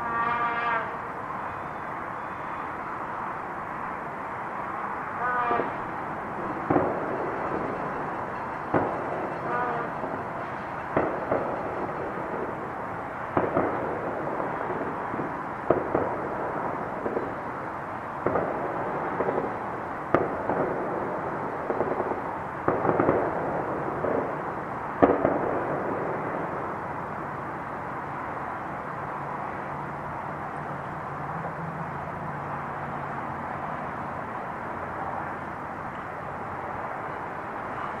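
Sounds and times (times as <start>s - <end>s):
steady background noise: 0.0s - 38.0s
firecracker bangs and pops: 6.6s - 12.6s, 13.3s - 17.4s, 18.2s - 26.7s.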